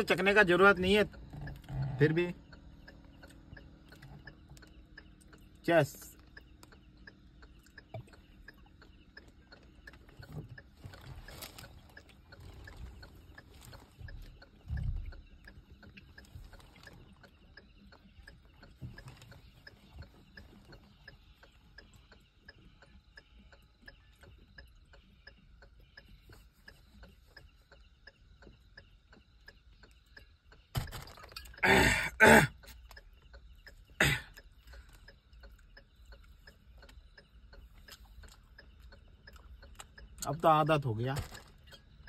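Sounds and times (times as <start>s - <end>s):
faint regular ticking: 0.0s - 42.0s
man coughing: 31.6s - 32.6s, 34.0s - 34.3s.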